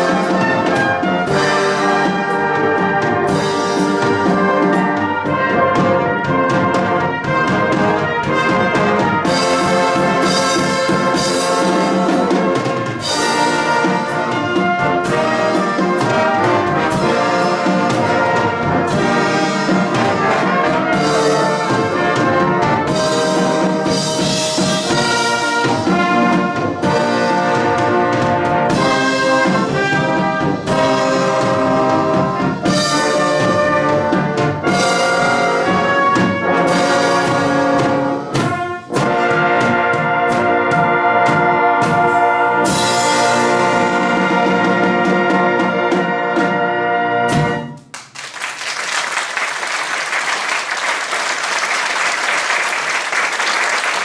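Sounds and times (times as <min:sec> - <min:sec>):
brass band playing: 0:00.0 - 0:54.0
audience applause: 0:47.9 - 0:54.0.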